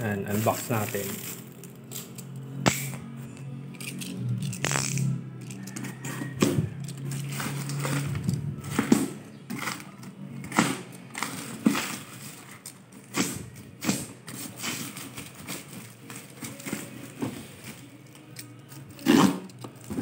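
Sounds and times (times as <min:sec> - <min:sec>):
paper and cardboard rustling: 0:00.0 - 0:02.0, 0:06.2 - 0:20.0
plastic crinkling: 0:00.1 - 0:02.3, 0:10.9 - 0:20.0.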